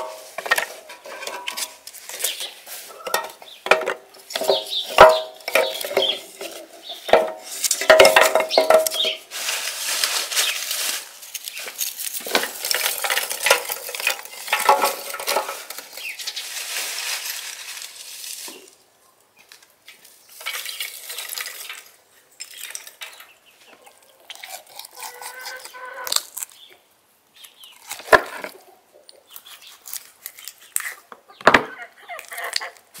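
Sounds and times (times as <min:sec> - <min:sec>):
charcoal clattering and crunching: 0:00.0 - 0:18.8, 0:19.4 - 0:26.8, 0:27.4 - 0:33.0
hen clucking: 0:23.6 - 0:26.2, 0:31.0 - 0:32.8.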